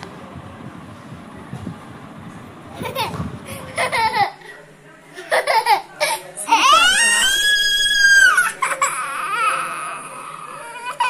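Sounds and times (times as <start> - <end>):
toddler crying: 6.5 - 11.0.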